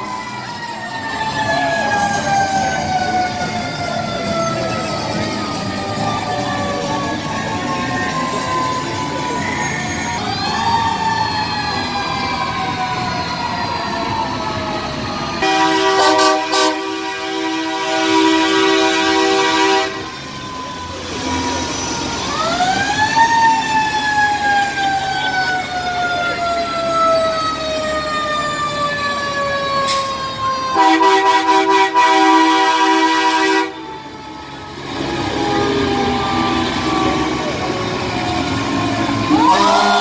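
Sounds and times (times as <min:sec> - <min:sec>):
fire engine siren winding: 0:00.0 - 0:40.0
truck air horn: 0:15.4 - 0:20.2, 0:30.8 - 0:33.8.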